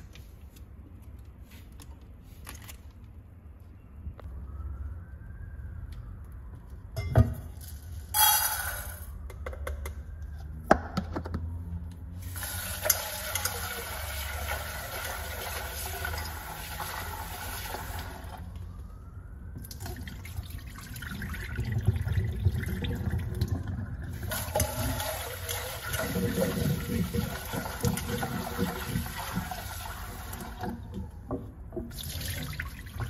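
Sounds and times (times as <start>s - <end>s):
tap water running into metal pot: 12.2s - 18.4s, 24.2s - 30.9s, 31.9s - 33.0s
water poured into sink: 12.2s - 18.4s, 19.6s - 31.0s, 31.9s - 33.0s.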